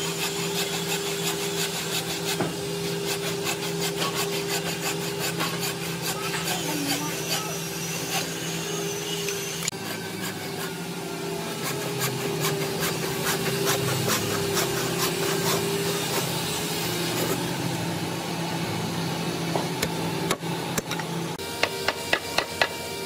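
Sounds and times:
tool scraping wood: 0.0 - 17.7.

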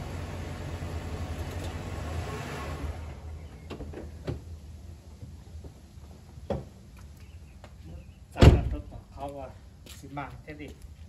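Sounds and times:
car engine humming: 0.0 - 5.2.

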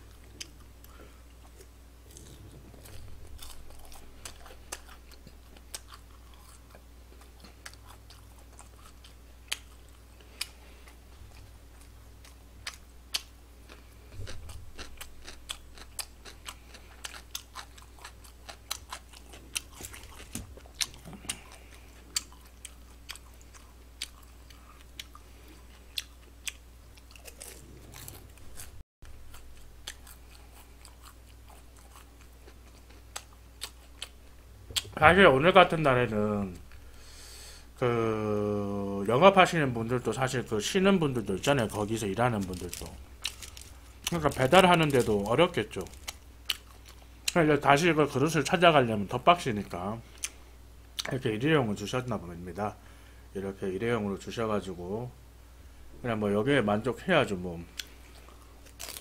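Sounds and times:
person chewing food: 0.0 - 35.0, 42.4 - 47.4, 50.1 - 51.2, 57.7 - 59.0.

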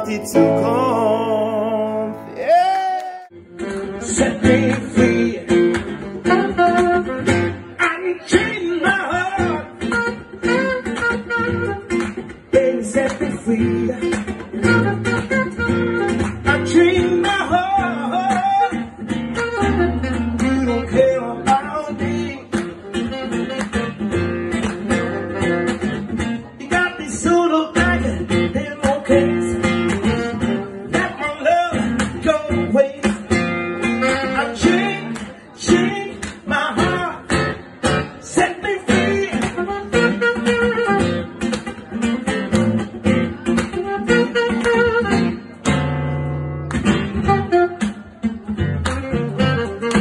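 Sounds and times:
saxophone melody: 0.0 - 2.8, 6.2 - 7.6, 9.7 - 12.0, 14.6 - 16.7, 19.2 - 21.0, 22.9 - 23.9, 24.8 - 25.8, 33.8 - 35.0, 39.0 - 41.4, 43.3 - 45.5, 47.1 - 48.0, 49.0 - 50.0
acoustic guitar strumming: 0.0 - 50.0.

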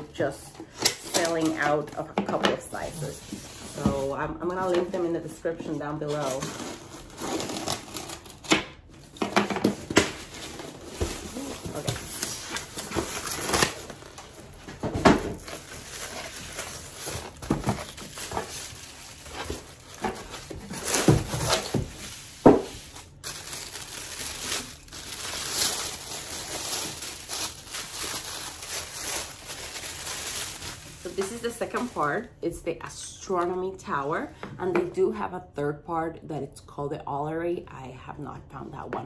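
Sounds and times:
plastic bag crinkling: 6.1 - 32.3.

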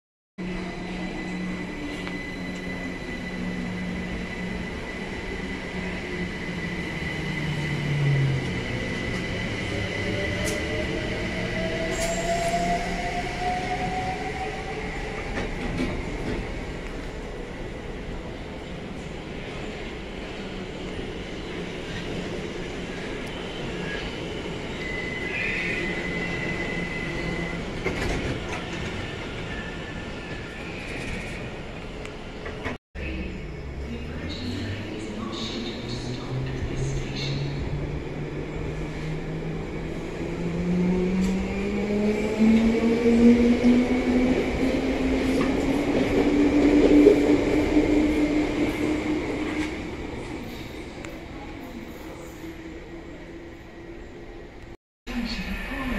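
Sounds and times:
train wheels squealing: 11.6 - 15.3, 23.3 - 27.7, 28.6 - 31.6
train rumbling: 25.4 - 55.9.

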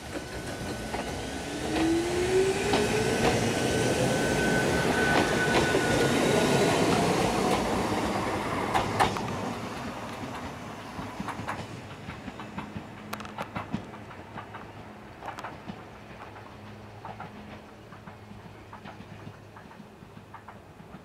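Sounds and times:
train rumble: 0.0 - 21.0
wheels clacking over rail joints: 0.0 - 21.0
electric train drive whine: 0.1 - 13.7.

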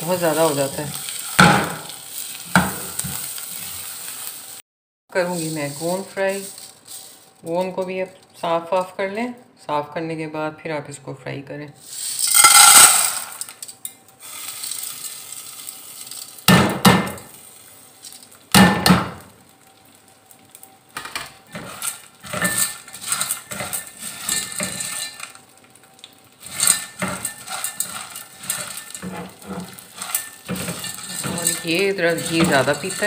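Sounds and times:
spatula scraping a metal pot: 21.5 - 25.3, 26.4 - 33.0.

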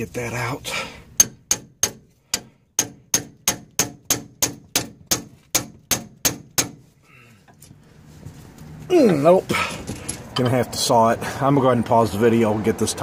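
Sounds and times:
hammer striking steel: 1.2 - 6.8.

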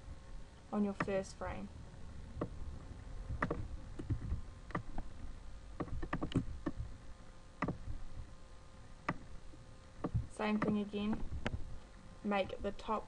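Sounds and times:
computer mouse clicking: 3.3 - 5.1, 5.8 - 6.9, 7.6 - 7.9.

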